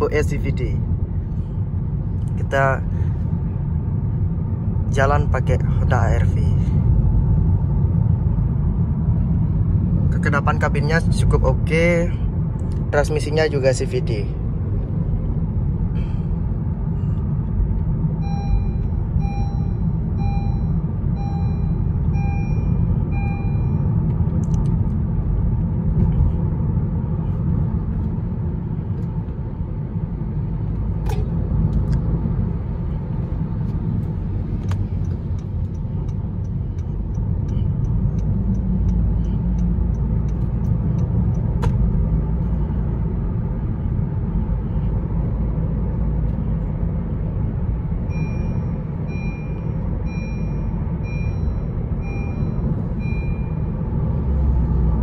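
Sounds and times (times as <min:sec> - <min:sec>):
car road and engine rumble: 0:00.0 - 0:55.0
electronic chime beeping: 0:18.2 - 0:23.9, 0:48.1 - 0:53.7.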